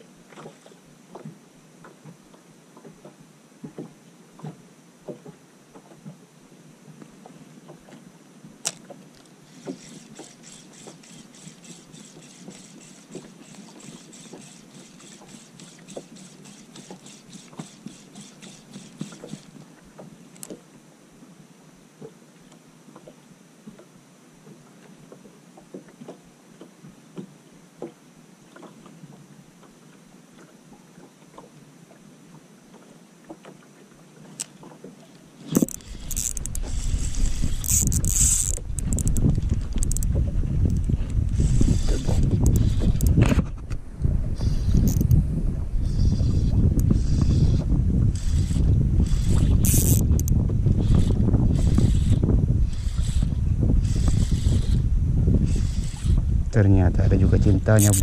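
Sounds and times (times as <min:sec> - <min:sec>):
waves lapping against boat hull: 0:00.0 - 0:20.9, 0:21.9 - 0:58.0
fine regular ticking: 0:35.5 - 0:40.1, 0:48.2 - 0:51.0, 0:57.7 - 0:58.0
low rumble on microphone: 0:35.8 - 0:58.0.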